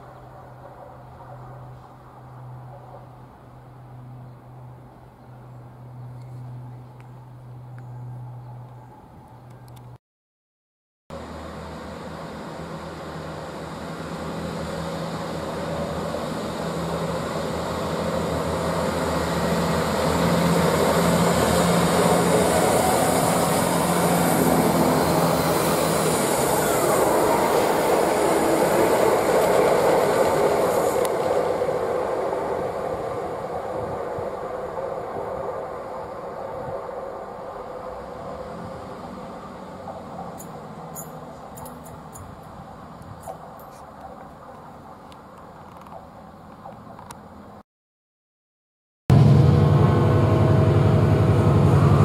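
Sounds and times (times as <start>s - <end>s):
diesel train engines droning: 0.0s - 10.0s, 11.1s - 47.6s, 49.1s - 52.0s
train wheels on rails: 12.0s - 47.1s
short falling whine: 49.1s - 52.0s.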